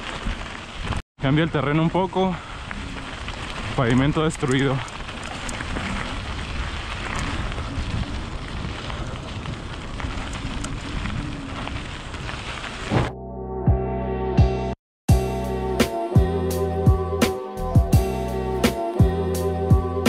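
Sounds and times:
bike tyres on broken pavement: 0:00.0 - 0:13.2
wind over microphone: 0:02.4 - 0:13.1
music: 0:13.1 - 0:20.0.

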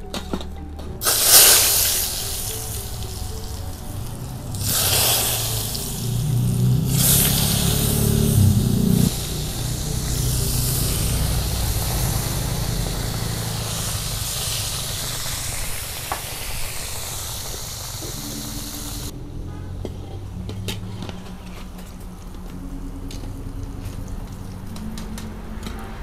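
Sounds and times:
hot oil sizzling in a wok: 0:01.0 - 0:19.1.

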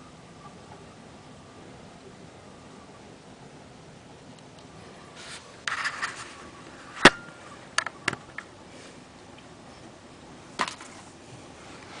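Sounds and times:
handling rustle: 0:05.0 - 0:07.2, 0:09.7 - 0:12.0.

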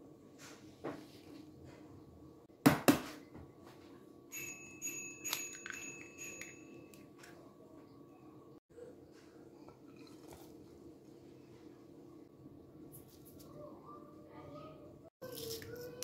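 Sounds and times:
bell-like ringing: 0:04.3 - 0:07.1.

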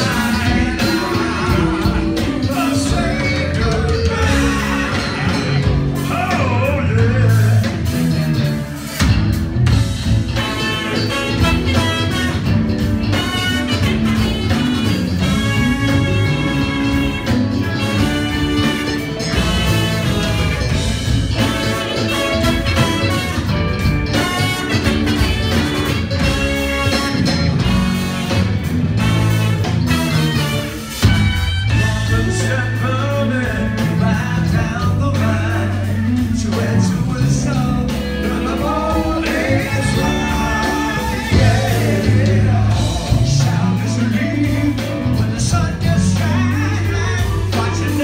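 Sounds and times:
drums: 0:00.0 - 0:48.0
electric bass: 0:00.0 - 0:48.0
electric guitar: 0:00.0 - 0:48.0
saxophone and brass horns: 0:00.0 - 0:48.0.

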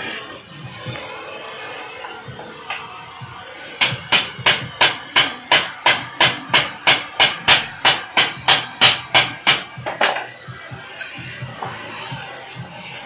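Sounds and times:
hammer striking metal: 0:03.8 - 0:10.3.

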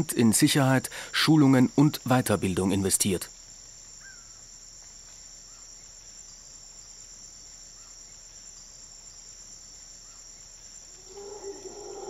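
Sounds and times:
crickets chirring: 0:00.0 - 0:12.0.

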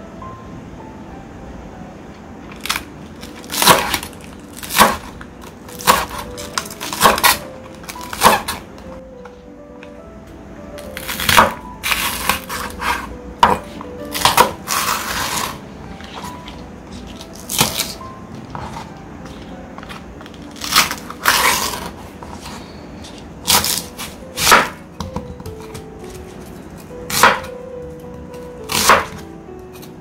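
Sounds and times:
faint background music: 0:00.0 - 0:30.0
knife scraping board: 0:12.0 - 0:13.6, 0:20.6 - 0:24.7.

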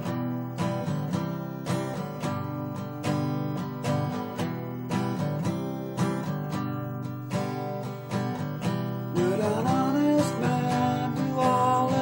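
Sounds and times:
acoustic guitar strumming: 0:00.0 - 0:12.0
man singing: 0:09.1 - 0:12.0.

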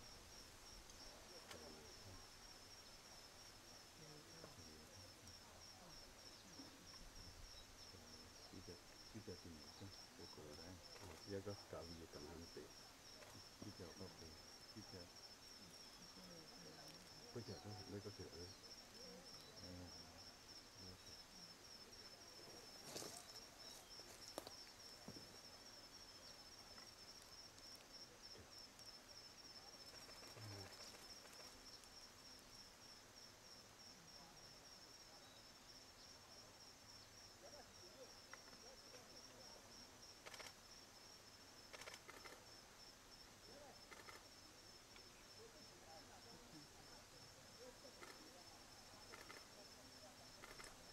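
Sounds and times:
faint clicks: 0:29.8 - 0:32.0, 0:40.2 - 0:40.6, 0:41.7 - 0:42.4, 0:43.9 - 0:44.3, 0:48.0 - 0:48.3, 0:49.0 - 0:49.5, 0:50.4 - 0:50.8.

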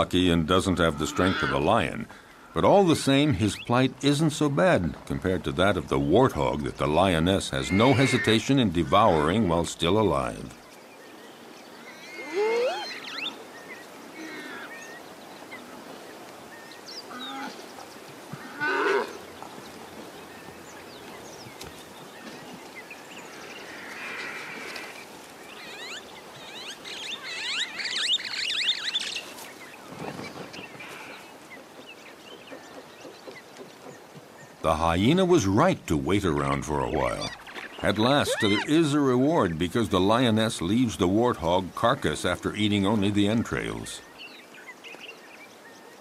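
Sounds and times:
faint steady hiss: 0:00.0 - 0:46.0
warthog squealing: 0:00.8 - 0:01.7, 0:07.6 - 0:09.3, 0:12.0 - 0:13.3, 0:36.4 - 0:38.8.

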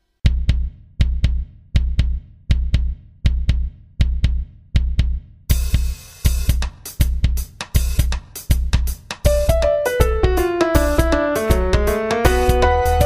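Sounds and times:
deep booming bass: 0:00.3 - 0:06.0, 0:09.3 - 0:13.0.

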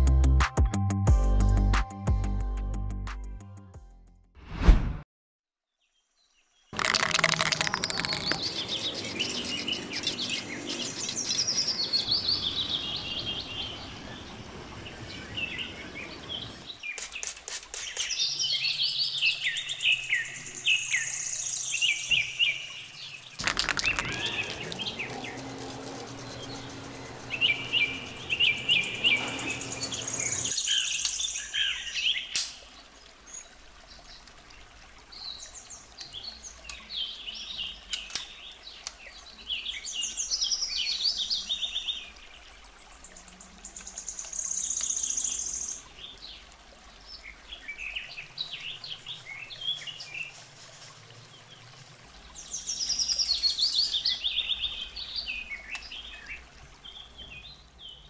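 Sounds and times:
birds chirping and singing: 0:06.8 - 0:16.8, 0:17.9 - 0:32.2.

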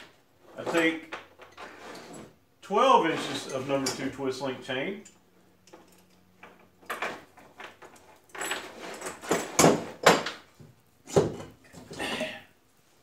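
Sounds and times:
metal chain rattling and clinking: 0:05.0 - 0:09.7.

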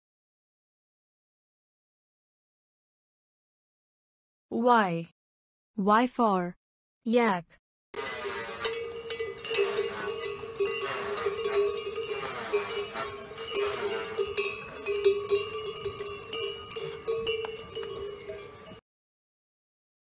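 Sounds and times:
animal bells ringing and clanking: 0:08.0 - 0:18.8.

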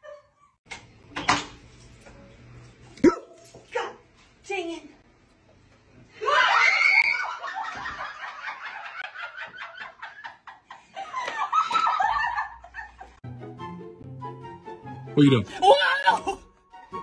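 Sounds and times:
woman screaming: 0:06.2 - 0:07.4, 0:15.5 - 0:16.5.

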